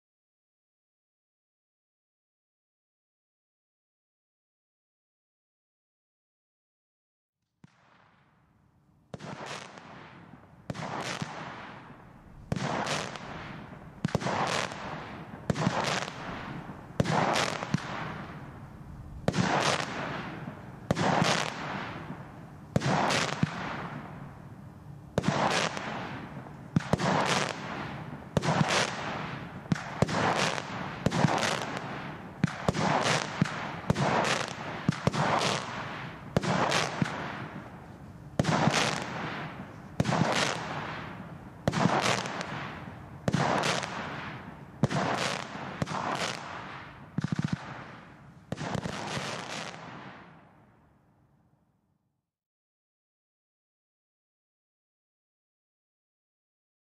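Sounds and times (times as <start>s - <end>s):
fireworks bangs with hiss: 9.1s - 24.4s, 25.2s - 50.4s.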